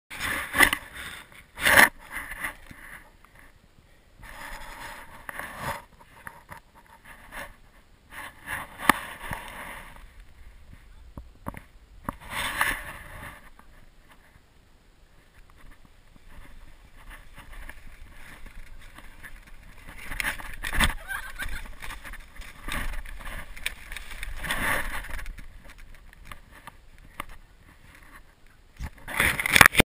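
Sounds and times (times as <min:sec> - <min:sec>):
sled scraping over snow: 0:04.2 - 0:11.0, 0:12.0 - 0:14.4, 0:15.2 - 0:29.8.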